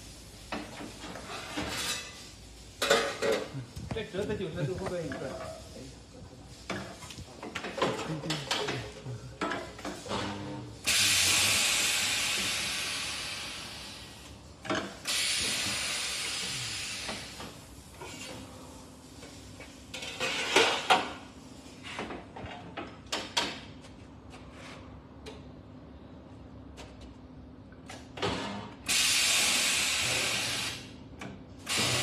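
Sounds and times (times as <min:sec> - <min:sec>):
compressed air hissing: 0:10.7 - 0:19.6, 0:28.8 - 0:30.9, 0:31.6 - 0:32.0.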